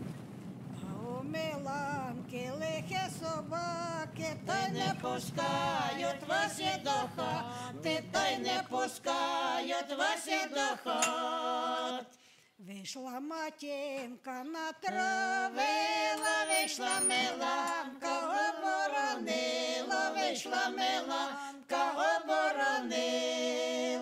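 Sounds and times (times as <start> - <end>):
group singing folk song: 4.5 - 12.2, 14.9 - 24.0.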